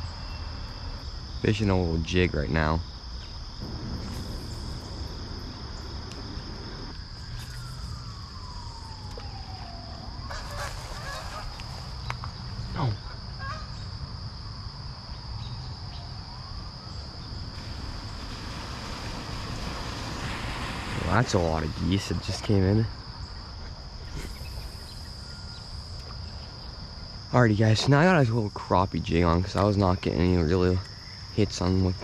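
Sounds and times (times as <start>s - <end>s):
crickets chirping: 0.0s - 32.0s
geese honking: 10.3s - 12.2s, 13.0s - 13.8s.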